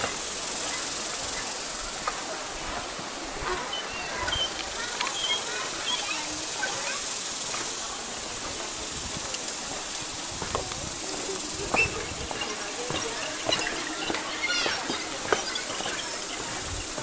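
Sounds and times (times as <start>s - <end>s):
faint voices: 0.0s - 17.0s
steady high hiss: 0.0s - 17.0s
faint bird chirps: 3.7s - 7.0s
footsteps on wooden planks: 10.3s - 17.0s.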